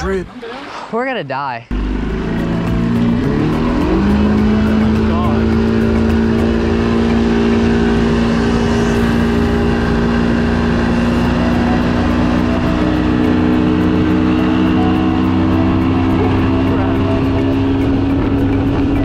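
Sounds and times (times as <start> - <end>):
motorboat engine running: 1.7 - 19.0.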